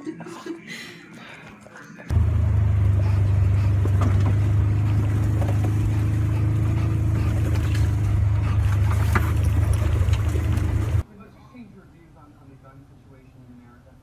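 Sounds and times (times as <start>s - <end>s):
vehicle engine rumbling: 2.1s - 11.0s.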